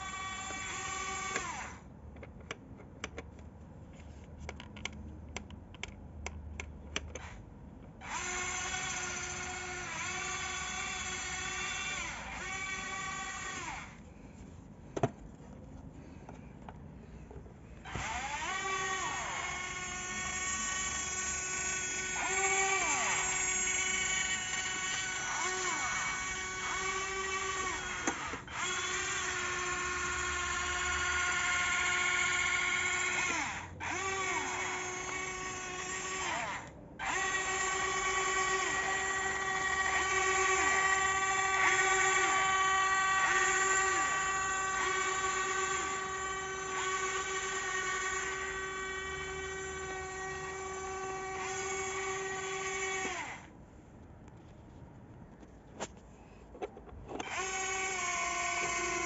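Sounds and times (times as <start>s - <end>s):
electric motor and gearbox whining: 0.0s - 1.8s, 8.0s - 14.0s, 17.8s - 53.5s, 57.1s - 59.0s.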